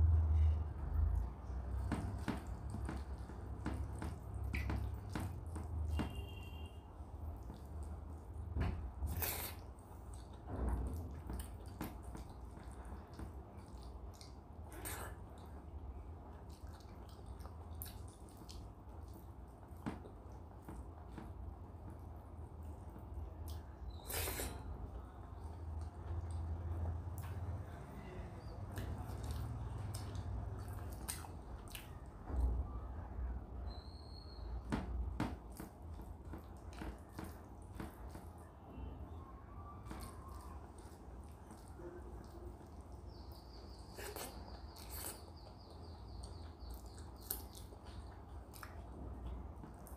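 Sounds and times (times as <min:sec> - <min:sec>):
wet chewing: 0:01.2 - 0:21.4, 0:22.4 - 0:32.5, 0:39.5 - 0:49.9
eating noises: 0:07.0 - 0:32.6, 0:39.8 - 0:49.9.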